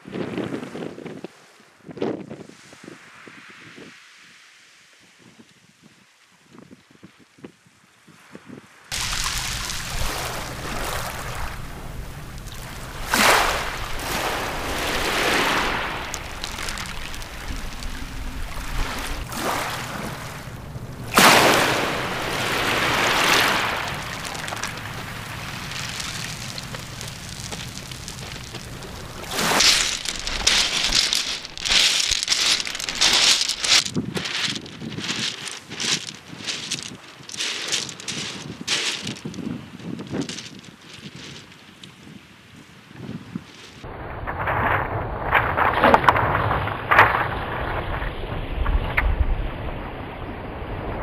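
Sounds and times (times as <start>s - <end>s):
wind rumble on microphone: 0.0s - 3.9s, 5.1s - 51.0s
waves washing over pebbles: 8.9s - 40.6s, 43.8s - 49.6s
footsteps crunching on shingle: 8.9s - 41.6s.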